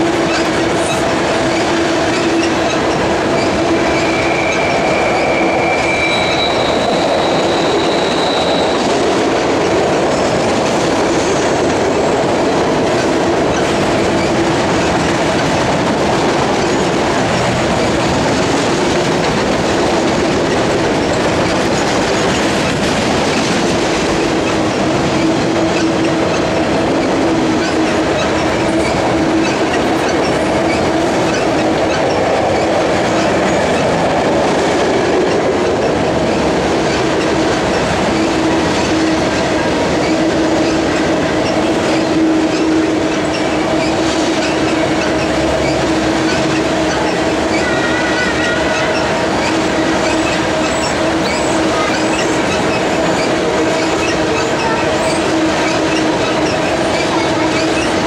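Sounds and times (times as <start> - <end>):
freight cars rolling on rails: 0.0 - 58.0
wheel squeals: 0.3 - 9.0, 40.0 - 58.0.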